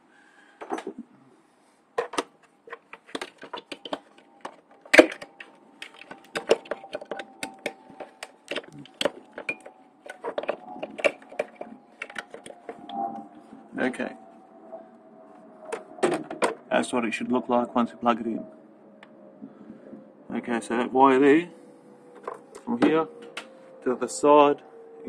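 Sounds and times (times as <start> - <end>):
plastic connectors clicking: 2.0 - 12.8.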